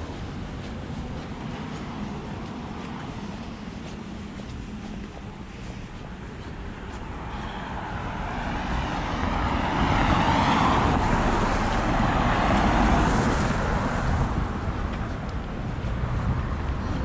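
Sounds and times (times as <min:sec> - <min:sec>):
car tyres hissing on wet road: 0:07.0 - 0:14.3.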